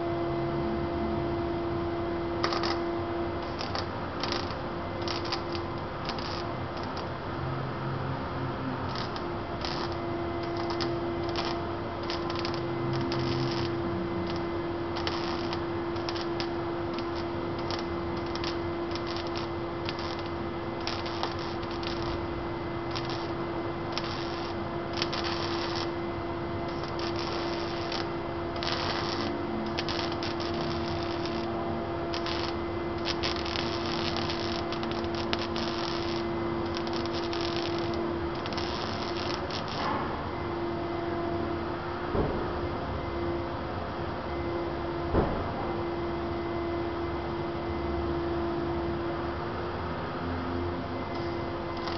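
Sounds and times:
steady welder hum: 0.0 - 41.4, 51.1 - 51.9
welding arc crackling: 2.4 - 7.1, 8.8 - 40.0.

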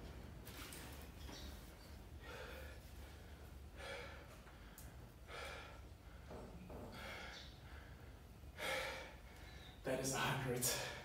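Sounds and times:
man breathing hard: 2.1 - 9.8, 10.6 - 11.0.

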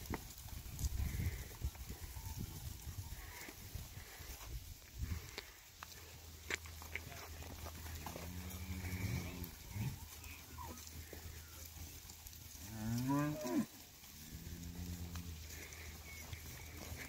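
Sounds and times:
cows mooing: 7.8 - 11.6, 12.4 - 17.0.

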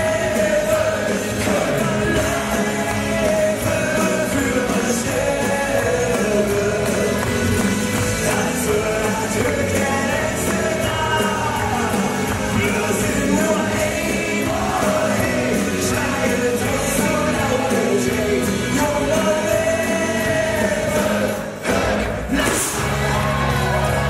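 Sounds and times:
person singing into a microphone: 0.0 - 7.4, 8.2 - 23.4
backing music: 0.0 - 24.0
crowd singing along: 0.0 - 24.0.

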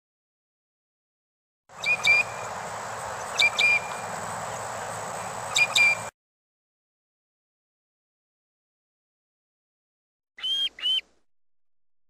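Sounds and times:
background hiss: 1.8 - 6.1
bird calling sharp notes: 1.8 - 6.1, 10.4 - 11.2.

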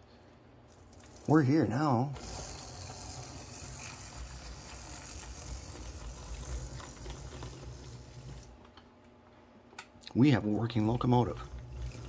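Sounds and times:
model locomotive motor whirring: 0.7 - 8.5.

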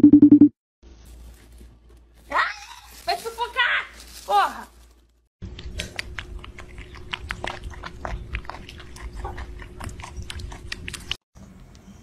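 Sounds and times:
kitten crunching dry kibble: 4.0 - 11.2.

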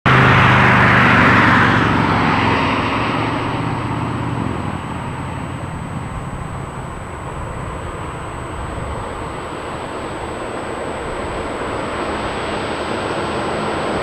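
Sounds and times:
vehicle passing by: 0.1 - 14.0.

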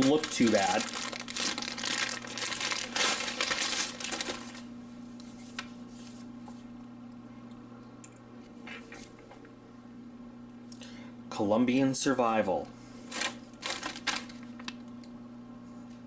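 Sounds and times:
plastic packaging rustling: 0.0 - 5.7, 13.1 - 14.8.

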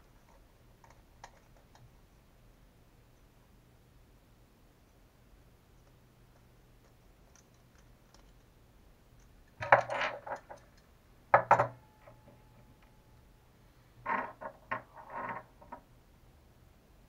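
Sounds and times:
small parts and tools clattering: 9.6 - 12.7.

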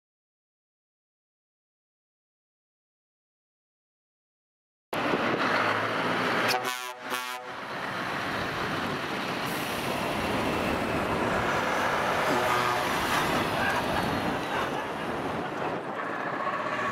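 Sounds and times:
diesel trucks driving past: 5.0 - 16.9
truck horn toots: 6.4 - 7.6, 12.2 - 13.2.

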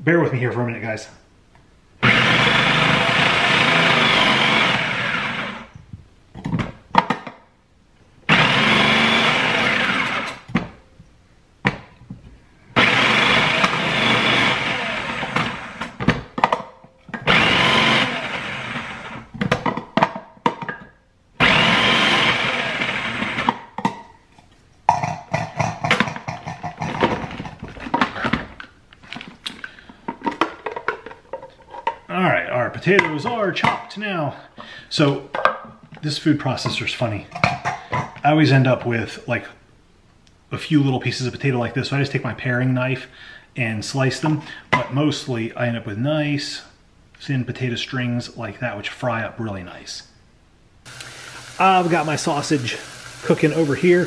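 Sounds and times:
food processor shredding: 2.0 - 5.7, 8.3 - 10.5, 12.8 - 16.0, 17.2 - 19.3, 21.4 - 23.6, 50.9 - 54.0.

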